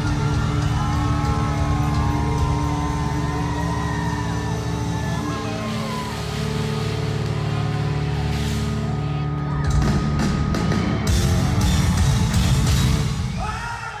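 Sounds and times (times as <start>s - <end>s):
drum and cymbal hits: 0.0s - 8.9s, 9.6s - 13.6s
rock band playing live: 0.0s - 13.4s.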